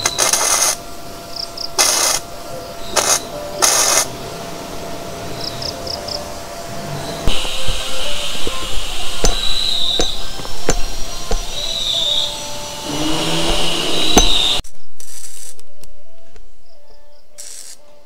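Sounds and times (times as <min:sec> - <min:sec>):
arc welding crackle: 0:00.0 - 0:06.5, 0:07.2 - 0:15.6, 0:17.4 - 0:17.8
background music: 0:01.0 - 0:14.6.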